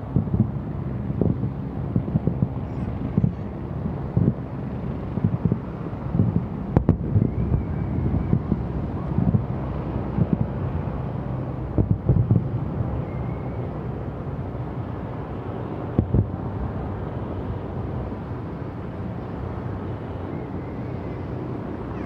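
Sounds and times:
steady low rumble: 0:00.0 - 0:22.0
distant fireworks booming: 0:05.2 - 0:10.6, 0:11.7 - 0:12.5.

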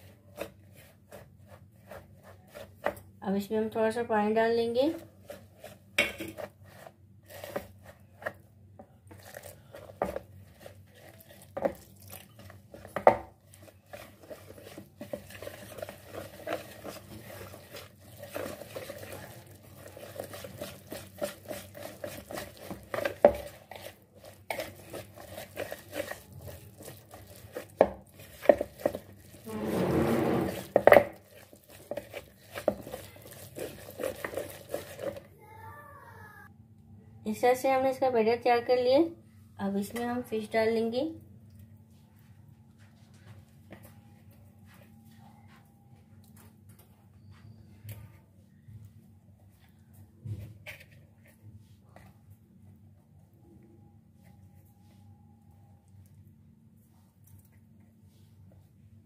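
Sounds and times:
whisk scraping batter in bowl: 0:00.0 - 0:03.1, 0:04.9 - 0:08.4, 0:09.1 - 0:35.3.

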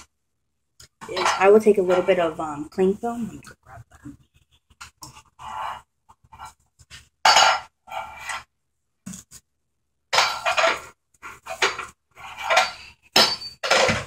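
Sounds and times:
toys clattering and clinking: 0:10.2 - 0:14.0.

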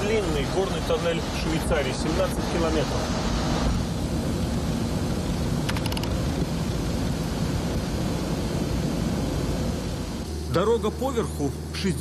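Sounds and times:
car road and engine rumble: 0:00.0 - 0:12.0
rapid clicks: 0:05.6 - 0:06.2.

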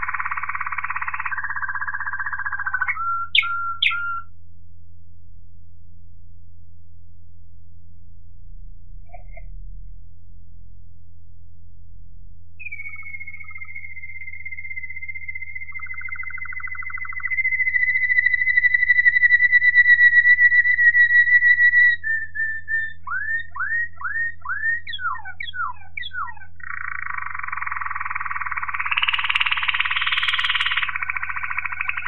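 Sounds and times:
canary singing: 0:00.0 - 0:04.3, 0:12.6 - 0:32.0
faint low hum: 0:02.2 - 0:17.4.

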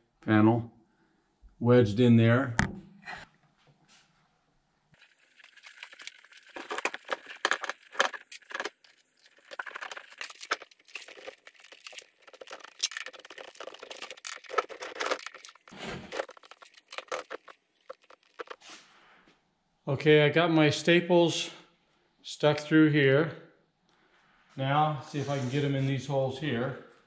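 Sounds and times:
hands rustling: 0:05.0 - 0:18.8
trim pieces knocking and scraping: 0:05.1 - 0:18.6.

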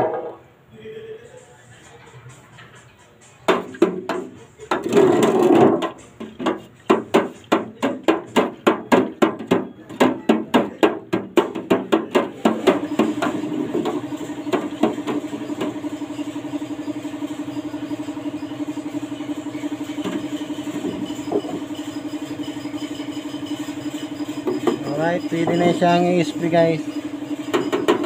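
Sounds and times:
stick scraping and knocking container: 0:03.6 - 0:09.5
motor running: 0:12.4 - 0:28.0.

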